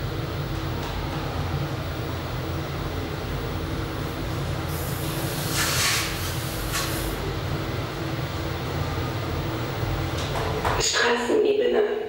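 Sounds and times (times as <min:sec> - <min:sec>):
elevator rumble and hum: 0:00.0 - 0:12.0
loud hiss: 0:04.7 - 0:07.2.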